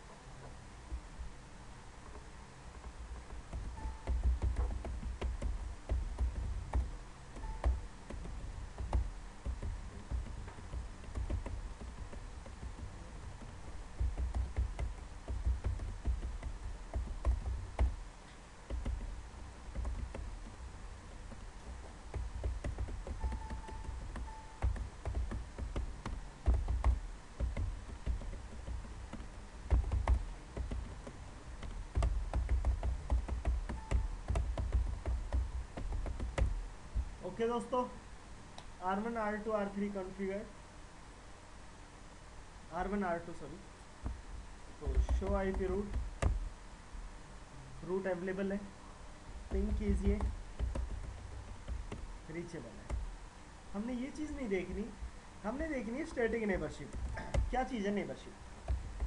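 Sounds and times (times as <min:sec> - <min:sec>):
keyboard typing: 0:02.8 - 0:18.1, 0:18.7 - 0:37.2, 0:44.8 - 0:46.5, 0:49.5 - 0:53.2, 0:54.1 - 0:58.0, 0:58.6 - 0:59.0
faint short beeps: 0:07.4 - 0:07.8, 0:23.2 - 0:24.6.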